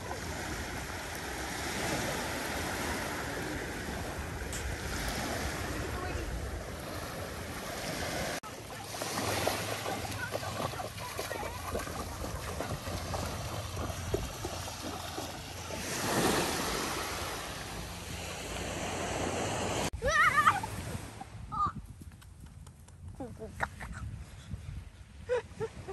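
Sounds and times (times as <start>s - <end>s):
ocean surf washing in: 0.0s - 10.6s, 11.3s - 21.3s
wind on microphone: 19.3s - 25.9s.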